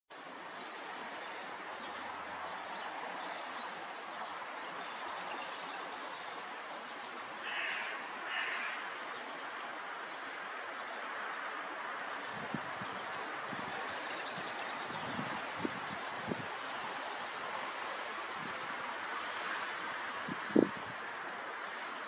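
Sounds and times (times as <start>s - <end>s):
crows cawing: 7.4s - 9.0s.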